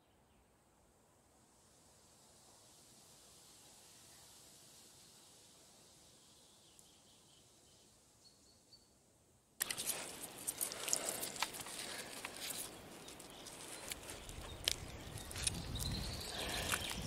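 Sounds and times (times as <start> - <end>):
fishing net rustling: 9.6 - 14.6.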